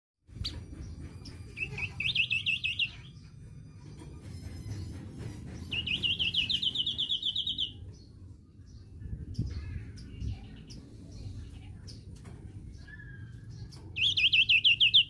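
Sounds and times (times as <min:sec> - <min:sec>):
songbird trilling: 0:05.7 - 0:07.9, 0:12.8 - 0:15.0
low background rumble: 0:07.7 - 0:14.1.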